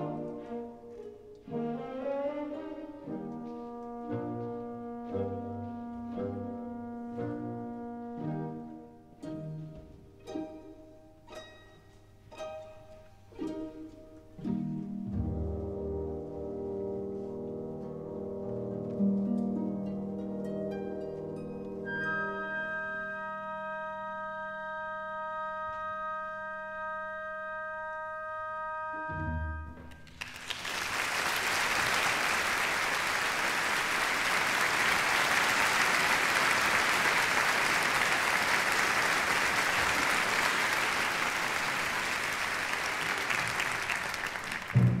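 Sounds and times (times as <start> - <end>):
audience applauding: 30.0 - 45.0.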